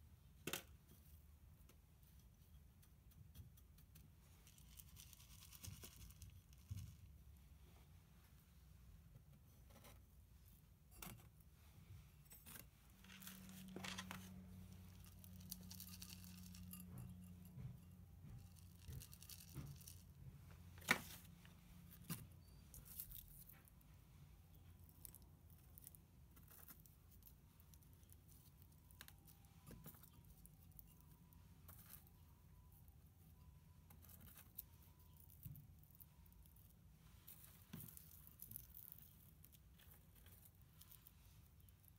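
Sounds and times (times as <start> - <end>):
low steady hum: 0.0 - 41.9
potting mix rustling and scraping: 11.0 - 23.8, 37.0 - 41.9.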